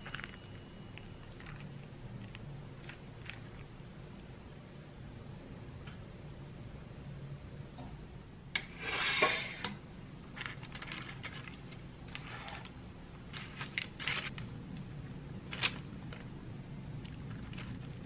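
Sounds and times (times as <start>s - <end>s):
baking paper rustling: 0.0s - 3.8s, 10.3s - 14.6s, 17.1s - 18.0s
plastic glove crinkling: 0.0s - 4.3s, 10.2s - 18.0s
low steady hum: 0.0s - 18.0s.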